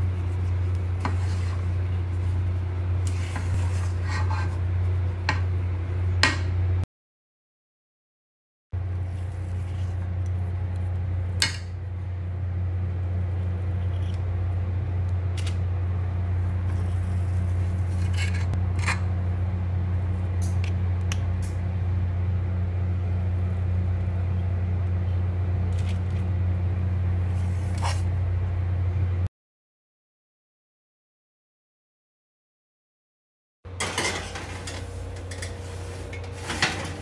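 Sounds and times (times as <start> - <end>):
steady low hum: 0.0 - 6.8, 8.8 - 29.3, 33.7 - 37.0
metal scoop scraping steel bowl: 3.1 - 4.6.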